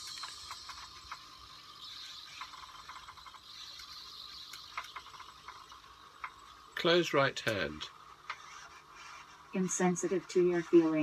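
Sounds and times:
small clicks: 0:00.0 - 0:06.6.

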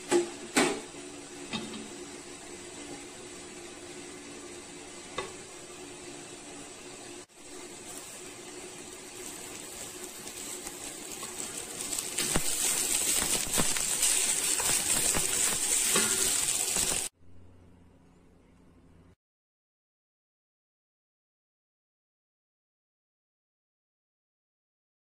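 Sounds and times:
rice sizzling in a pan: 0:00.1 - 0:17.2
steady low hum: 0:16.8 - 0:19.2.

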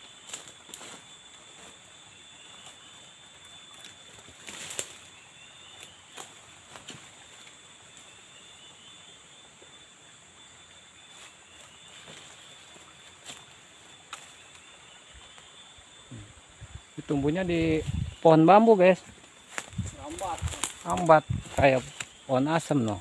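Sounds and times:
insects droning: 0:00.0 - 0:23.0.

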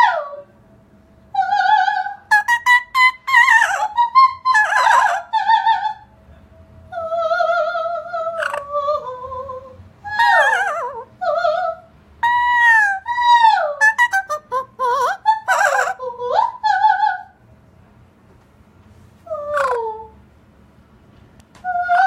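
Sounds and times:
parrot singing: 0:01.3 - 0:06.0, 0:06.9 - 0:17.3, 0:19.3 - 0:20.2, 0:21.6 - 0:22.0
woman singing soprano: 0:01.3 - 0:06.0, 0:06.9 - 0:17.4, 0:21.6 - 0:22.0.

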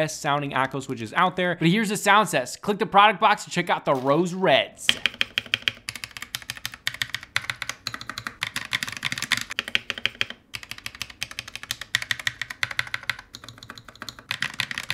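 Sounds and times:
mechanical keyboard typing: 0:04.9 - 0:14.9.

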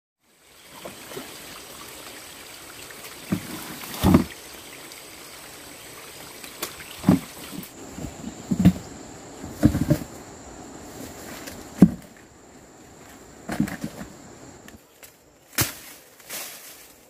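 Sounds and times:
steady background hiss: 0:00.3 - 0:17.0
crunches and thumps: 0:07.0 - 0:12.3, 0:12.9 - 0:14.7
footsteps through dry leaves: 0:15.5 - 0:17.0.

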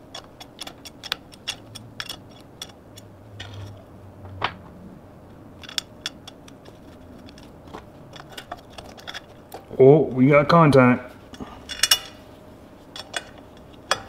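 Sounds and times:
small tools clicking and clinking: 0:00.0 - 0:03.8, 0:05.6 - 0:09.7.

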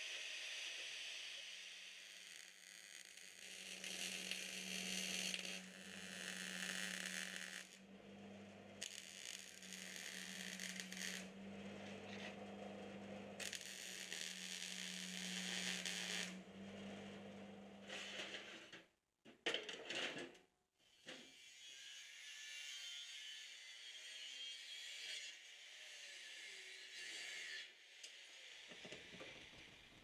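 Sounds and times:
welder hissing and crackling: 0:00.0 - 0:07.8, 0:08.8 - 0:11.3, 0:13.4 - 0:16.4
low steady hum: 0:07.7 - 0:18.0
angle grinder hissing: 0:08.8 - 0:11.3.

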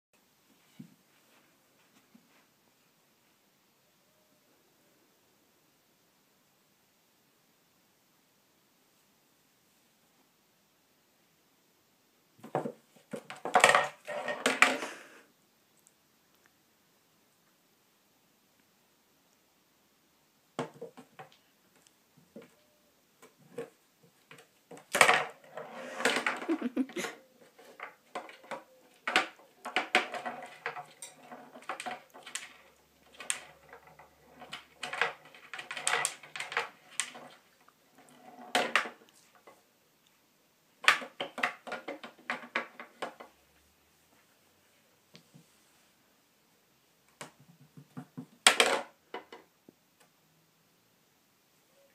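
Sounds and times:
small pool balls clacking: 0:12.4 - 0:15.0, 0:23.2 - 0:39.6, 0:40.8 - 0:43.4, 0:47.2 - 0:49.5
balls knocking table sides: 0:47.2 - 0:49.4.

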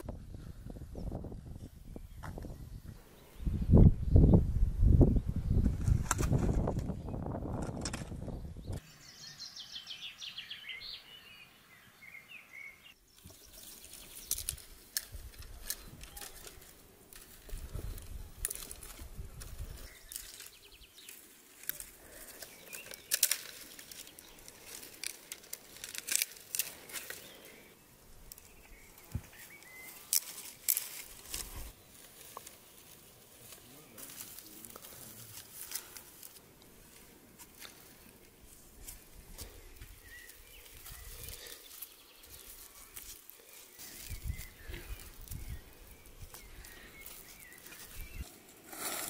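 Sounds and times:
dry branches rustling and snapping: 0:05.6 - 0:08.8, 0:13.2 - 0:49.0.

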